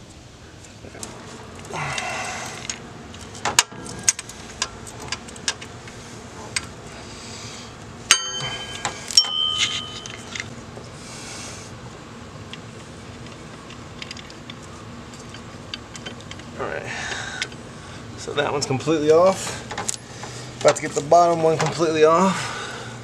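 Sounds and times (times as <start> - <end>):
metallic clanks ringing: 8.1 - 10.4.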